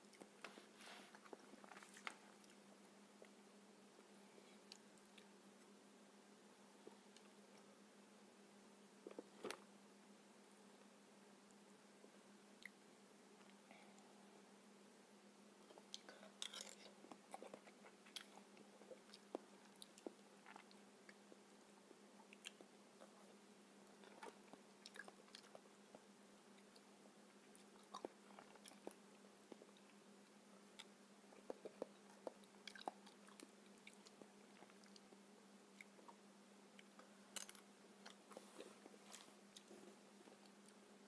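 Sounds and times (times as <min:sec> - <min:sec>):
person chewing soft fruit: 0:15.6 - 0:21.4, 0:22.2 - 0:36.2, 0:36.8 - 0:40.8.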